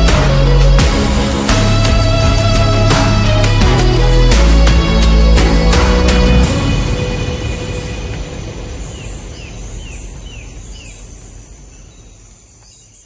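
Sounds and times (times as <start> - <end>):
noisy music wash: 0.0 - 10.4
bird chirping: 6.9 - 13.0.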